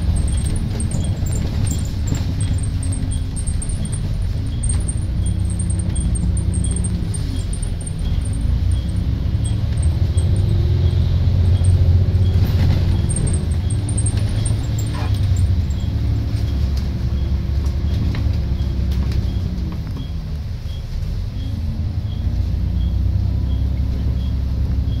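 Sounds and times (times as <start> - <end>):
light ticking: 0.0 - 17.0
bus engine accelerating: 0.0 - 25.0.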